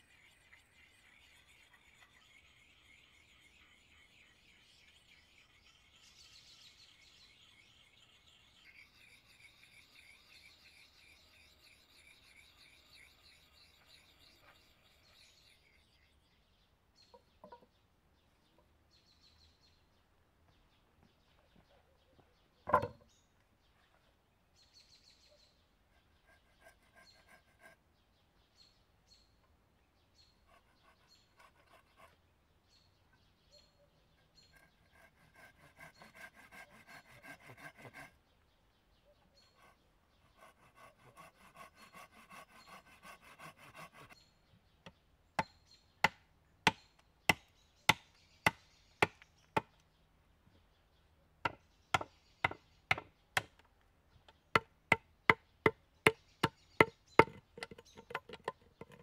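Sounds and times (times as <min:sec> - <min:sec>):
bird chirps: 0:00.0 - 0:46.1, 0:46.7 - 0:59.0
rhythmic scraping on wooden pole: 0:25.8 - 0:27.9, 0:30.4 - 0:32.2, 0:34.1 - 0:38.3, 0:39.4 - 0:44.2, 0:51.4 - 0:53.6, 0:54.3 - 0:59.0
hatchet chopping wood: 0:45.4 - 0:49.8, 0:51.4 - 0:53.7, 0:54.5 - 0:59.0.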